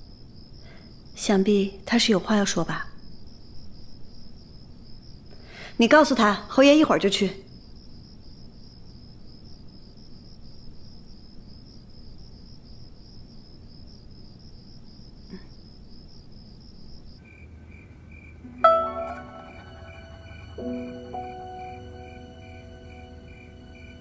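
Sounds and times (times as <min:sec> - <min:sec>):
crickets chirping: 0:00.0 - 0:24.0
lower insect trill: 0:07.0 - 0:24.0
plucked zither string: 0:18.4 - 0:22.4.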